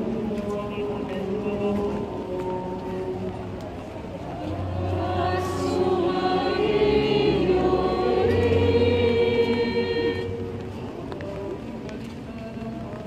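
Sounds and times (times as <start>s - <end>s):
church choir singing: 4.3s - 11.6s.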